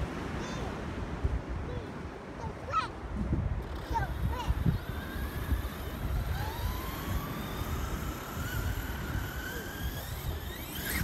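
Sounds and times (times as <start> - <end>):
wind rumble on microphone: 0.0 - 11.0
electric motor whine: 3.6 - 11.0.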